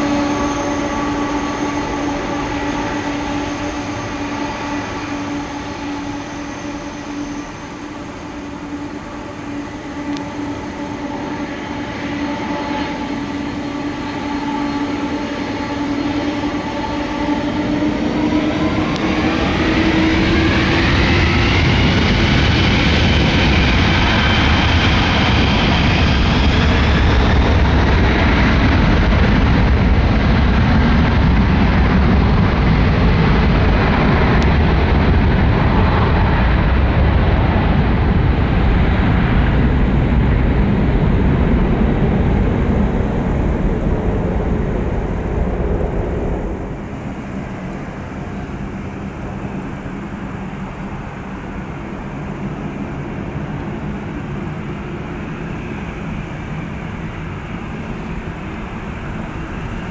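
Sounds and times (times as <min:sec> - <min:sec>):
deep roar of jet takeoff: 0:00.0 - 0:59.9
jet engines whining: 0:00.0 - 0:59.9.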